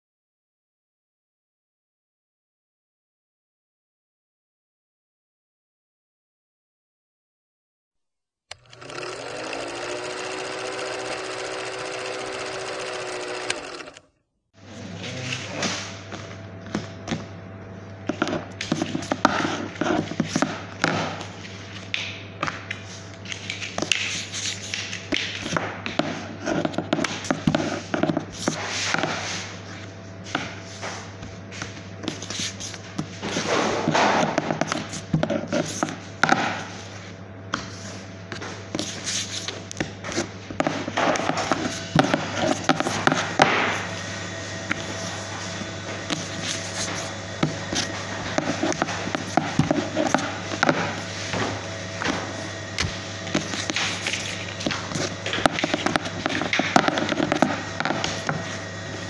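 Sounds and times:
low machine hum: 0:24.7 - 0:59.0.

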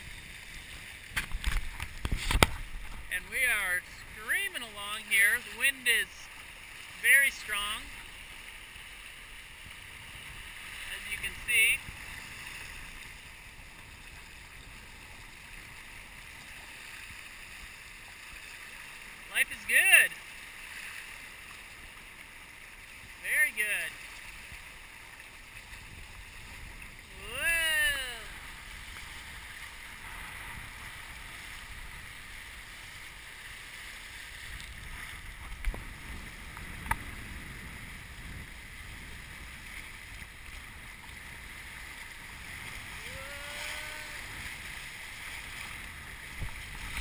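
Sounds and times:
rushing water and wind: 0:00.0 - 0:47.0
person calling out: 0:27.1 - 0:28.4, 0:43.0 - 0:44.3.

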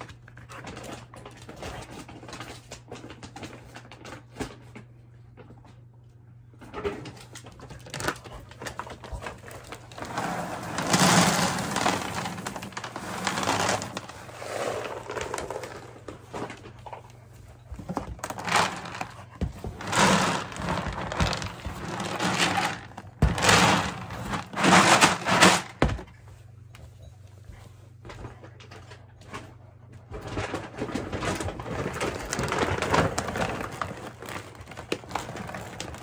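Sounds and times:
plastic bin knocking and scraping: 0:07.9 - 0:16.9, 0:17.8 - 0:26.1, 0:30.2 - 0:36.0.

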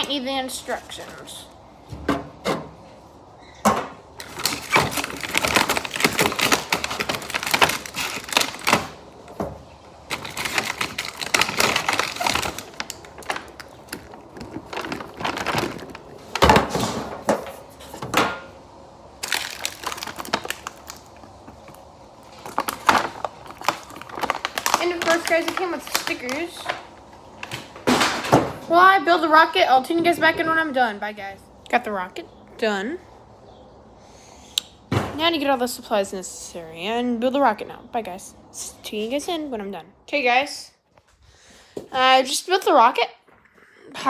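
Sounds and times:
plastic bag crinkling: 0:04.2 - 0:09.3, 0:10.0 - 0:16.6, 0:19.2 - 0:27.8.

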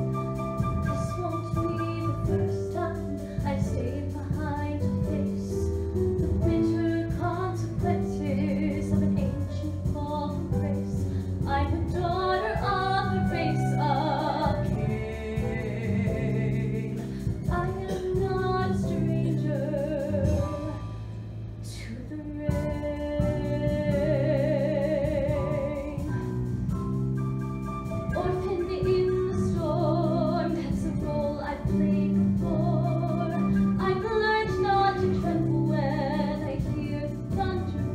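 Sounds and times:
instrumental accompaniment: 0:00.0 - 0:37.9
woman singing with vibrato: 0:06.5 - 0:20.8, 0:21.7 - 0:26.1, 0:28.2 - 0:37.9.

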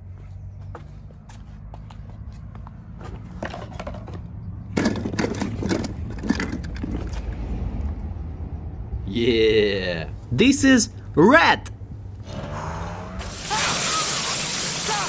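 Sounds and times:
plastic balls clattering and rustling: 0:03.4 - 0:07.1.

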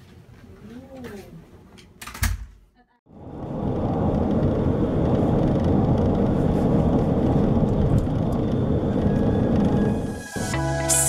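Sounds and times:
moving vehicle rumble: 0:03.1 - 0:10.6.

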